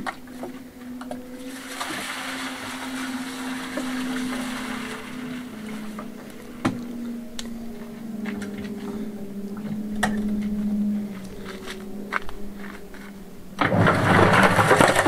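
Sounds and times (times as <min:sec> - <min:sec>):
cement mixer motor hum: 0:00.0 - 0:15.0
water pouring: 0:01.4 - 0:06.4.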